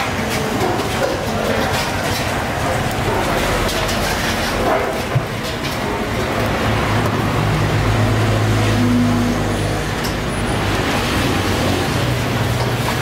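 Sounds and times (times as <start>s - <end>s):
road traffic noise: 0.0s - 13.0s
vehicle engine humming past: 6.4s - 13.0s.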